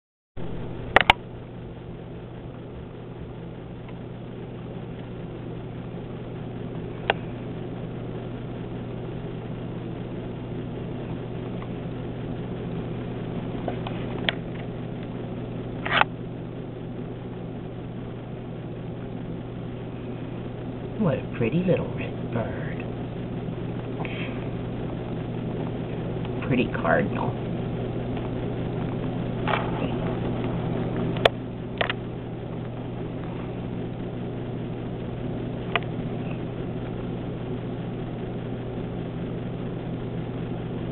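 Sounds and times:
low background hum: 0:00.4 - 0:40.9
sharp clicks: 0:00.9 - 0:01.2.

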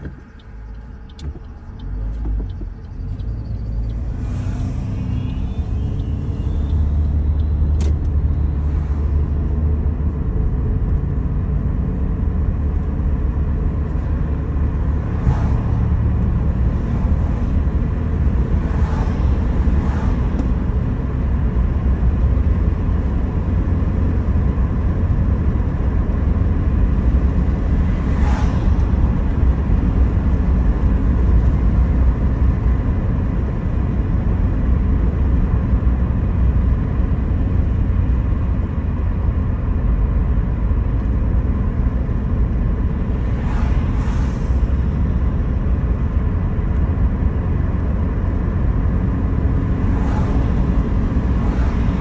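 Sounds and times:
light regular ticking: 0:00.0 - 0:04.0
car engine and road noise: 0:00.0 - 0:52.0.

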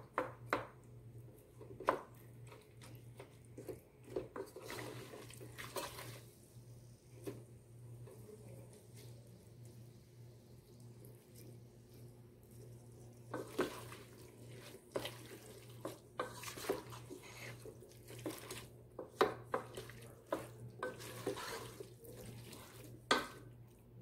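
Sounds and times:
squish of food being stirred: 0:00.0 - 0:24.0
wooden spoon scraping metal pot: 0:13.3 - 0:23.4.

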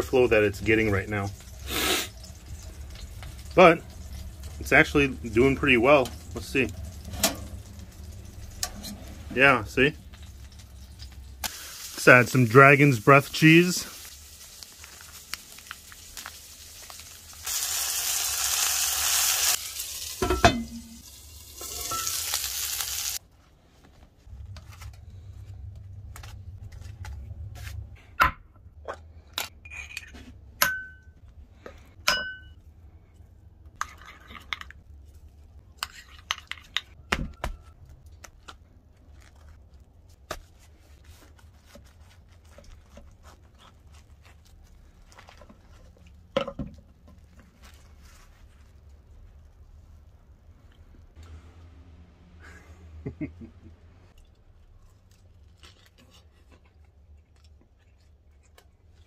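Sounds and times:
burger sizzling in a pan: 0:11.4 - 0:23.2.

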